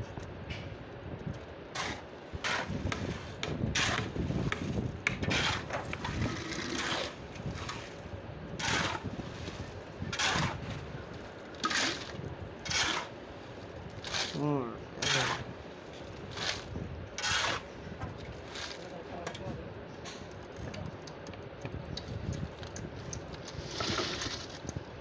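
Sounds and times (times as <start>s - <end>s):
shovel scraping wet concrete: 1.8s - 10.8s, 11.6s - 13.2s, 14.0s - 15.6s, 16.2s - 17.7s, 18.4s - 19.0s, 23.5s - 24.6s.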